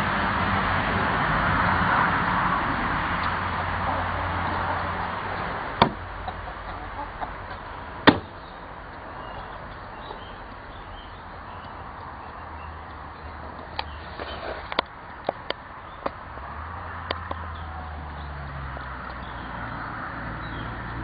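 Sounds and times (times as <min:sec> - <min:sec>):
chickens pecking at feeder: 0:03.2 - 0:15.6
chickens clucking: 0:03.2 - 0:16.1.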